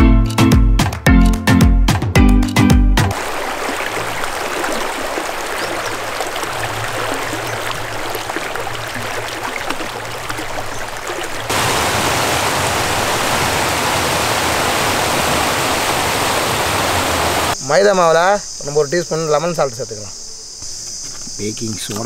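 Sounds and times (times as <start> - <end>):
stream rushing over rocks: 3.1 - 17.6.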